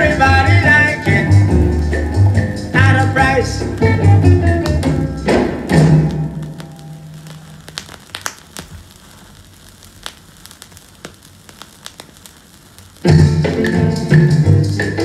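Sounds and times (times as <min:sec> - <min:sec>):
music from record: 0:00.0 - 0:08.6, 0:12.0 - 0:15.0
vinyl crackle and clicks: 0:00.0 - 0:15.0.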